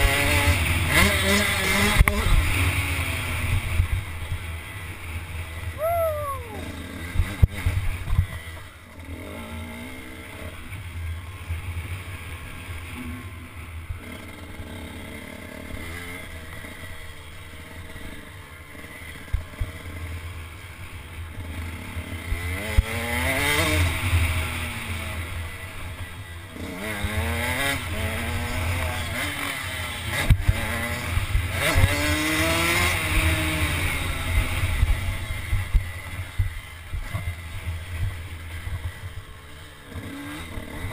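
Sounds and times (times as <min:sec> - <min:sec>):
dirt bike engine revving: 0:26.5 - 0:35.6, 0:38.8 - 0:40.9.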